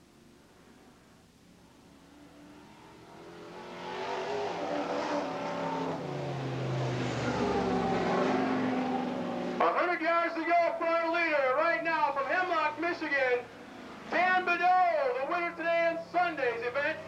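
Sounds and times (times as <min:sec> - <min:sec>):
off-road truck engines revving: 0:02.0 - 0:09.8, 0:12.0 - 0:17.0.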